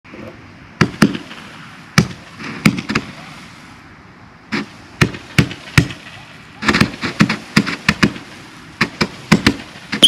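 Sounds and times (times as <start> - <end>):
faint steady hiss: 0.1 - 10.0
fireworks bangs: 0.8 - 3.8, 4.5 - 10.0.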